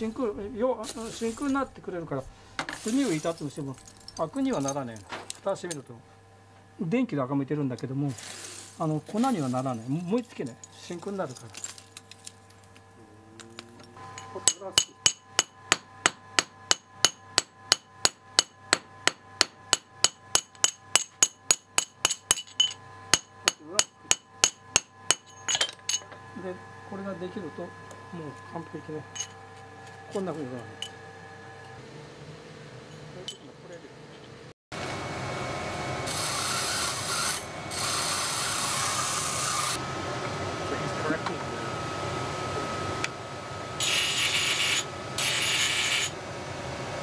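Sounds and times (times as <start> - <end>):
grinding wheel motor running: 8.1 - 17.7, 34.8 - 47.0
hammer striking metal blade: 14.2 - 26.1
hiss of blade grinding: 36.1 - 39.8, 43.8 - 46.2.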